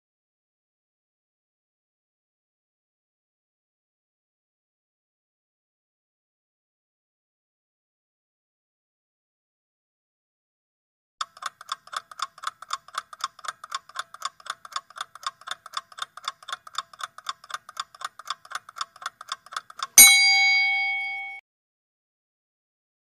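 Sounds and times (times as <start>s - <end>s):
clock ticking: 11.2s - 21.4s
bell ding: 20.0s - 21.4s.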